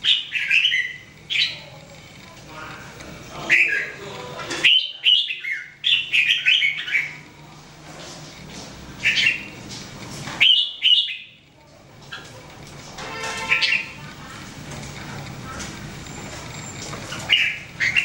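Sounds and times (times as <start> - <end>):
bird chirping song: 0.0 - 1.8, 4.6 - 7.2, 9.0 - 9.6, 10.4 - 11.4, 13.4 - 14.0, 16.0 - 18.0.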